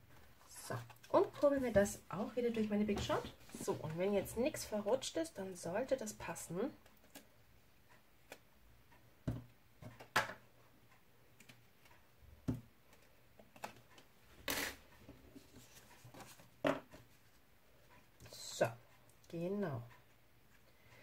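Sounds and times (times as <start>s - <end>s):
paper rustling: 15.4s - 16.5s.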